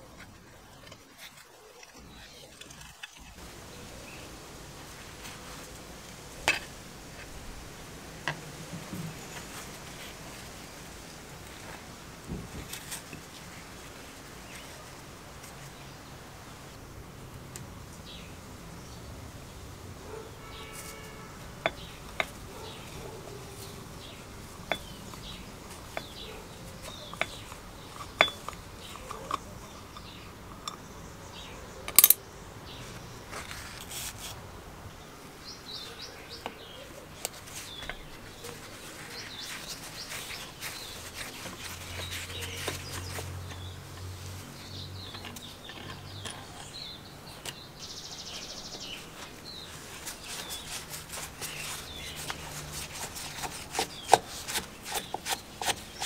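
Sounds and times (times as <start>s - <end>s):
metal tools clinking and scraping: 24.7s - 30.9s, 31.9s - 32.2s.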